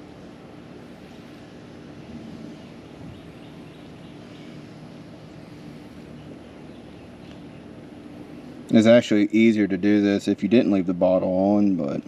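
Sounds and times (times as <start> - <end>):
distant motor drone: 0.0 - 12.0
faint bird chirps: 1.4 - 8.5.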